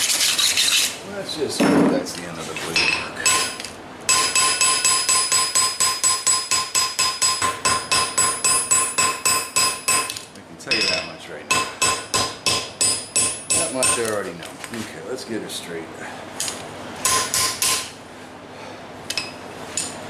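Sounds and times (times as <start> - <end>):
hammer ringing on anvil: 2.8 - 10.1, 10.7 - 14.0.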